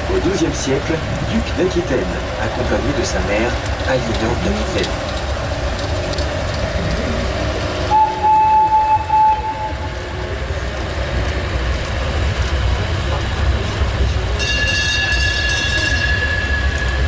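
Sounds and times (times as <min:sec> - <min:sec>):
road train rumble and rattle: 0:00.0 - 0:17.0
horn blasts: 0:07.9 - 0:10.1.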